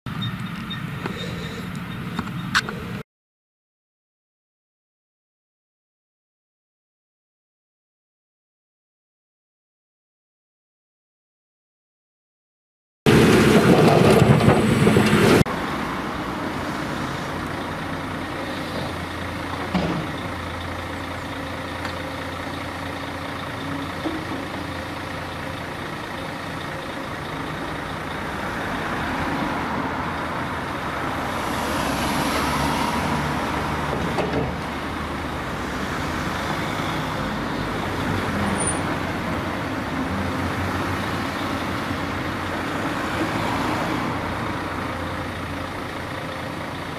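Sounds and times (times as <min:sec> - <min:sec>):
diesel engines running: 0:00.1 - 0:03.0, 0:13.1 - 0:46.9.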